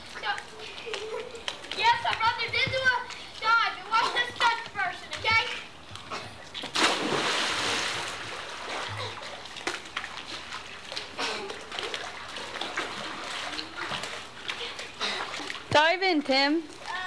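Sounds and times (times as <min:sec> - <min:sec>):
water churning and lapping: 0:00.0 - 0:17.0
loud splash into pool: 0:06.7 - 0:08.9.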